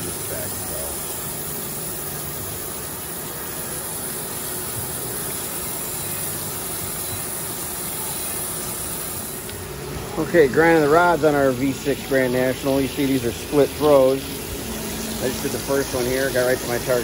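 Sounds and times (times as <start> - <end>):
grinding wheel hissing: 0.0 - 17.0
machine hum: 0.0 - 17.0.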